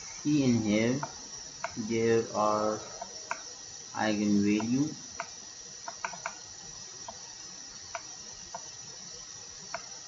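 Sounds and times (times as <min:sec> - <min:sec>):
steady background hiss: 0:00.0 - 0:10.0
computer mouse clicking: 0:01.0 - 0:01.8, 0:03.0 - 0:03.5, 0:04.6 - 0:06.4, 0:07.0 - 0:07.2, 0:07.8 - 0:08.7, 0:09.6 - 0:10.0.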